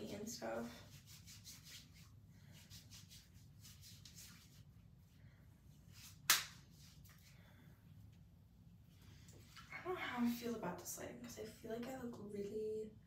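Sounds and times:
sharp snap: 0:06.2 - 0:06.6.

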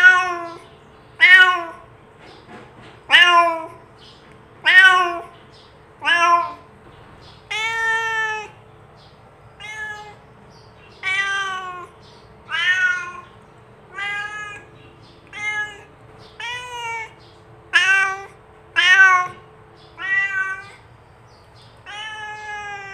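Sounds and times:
cat meowing: 0:00.0 - 0:01.9, 0:03.1 - 0:03.8, 0:04.6 - 0:05.4, 0:06.0 - 0:06.7, 0:07.4 - 0:08.6, 0:09.6 - 0:10.3, 0:10.9 - 0:20.9, 0:21.8 - 0:22.9.

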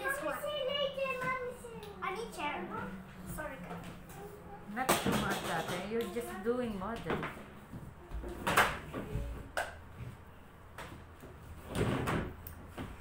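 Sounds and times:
plastic chair knocking on floor: 0:04.8 - 0:06.0, 0:06.9 - 0:10.2, 0:10.8 - 0:13.0
chair scraping on floor: 0:11.3 - 0:13.0.

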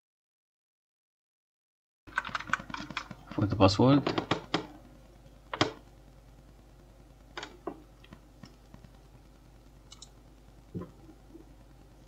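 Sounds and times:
computer keyboard clicks: 0:02.1 - 0:03.1, 0:09.9 - 0:10.2
low steady hum: 0:02.1 - 0:12.0.

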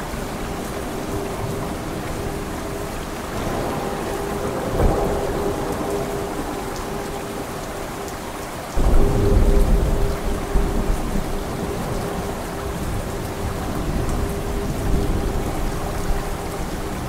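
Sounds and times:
low thunder rumble: 0:00.0 - 0:17.0
steady rain: 0:00.0 - 0:17.0
loud thunderclap: 0:03.3 - 0:07.5, 0:08.8 - 0:16.2.

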